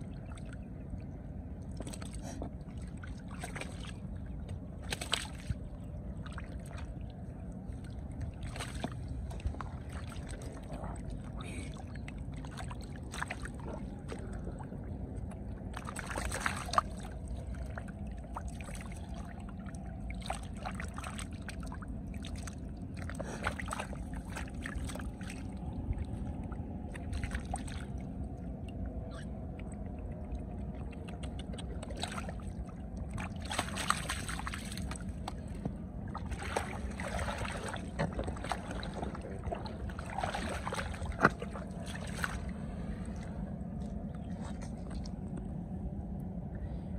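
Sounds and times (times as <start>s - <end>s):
steady low rumble: 0.0s - 46.9s
hands splashing in muddy water: 4.8s - 5.6s, 8.4s - 10.7s, 15.7s - 17.2s, 33.2s - 35.5s, 36.1s - 42.5s.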